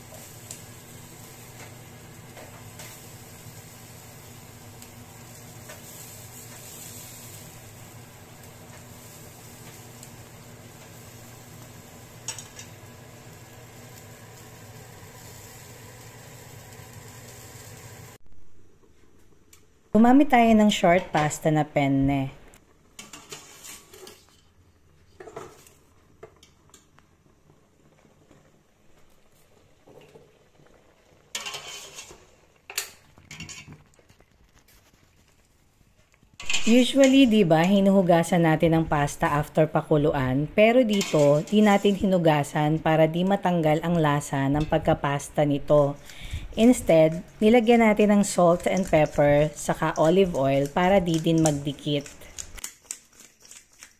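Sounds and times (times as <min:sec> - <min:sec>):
chicken sizzling on a grill: 0:00.0 - 0:18.2, 0:29.3 - 0:37.1.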